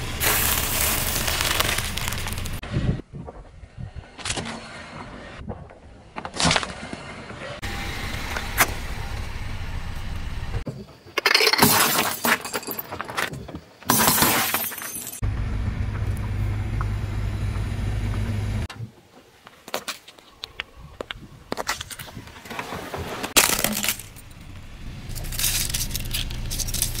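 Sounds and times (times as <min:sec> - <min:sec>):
objects crunching under tyre: 0:00.0 - 0:02.6, 0:19.5 - 0:27.0
car tyre rumbling: 0:00.0 - 0:10.7, 0:15.2 - 0:18.7, 0:20.4 - 0:27.0.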